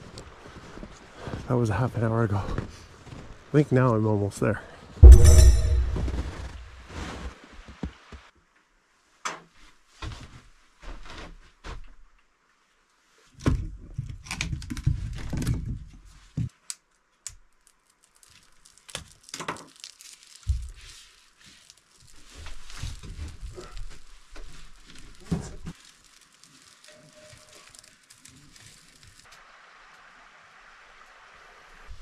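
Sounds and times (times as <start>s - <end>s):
paper crinkling and tearing: 17.6s - 29.3s.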